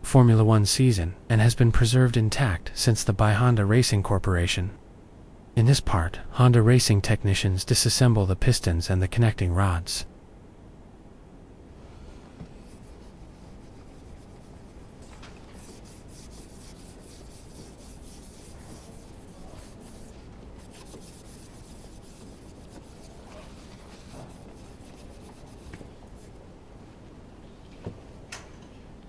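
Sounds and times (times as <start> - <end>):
hands rubbing on metal: 11.9 - 26.4.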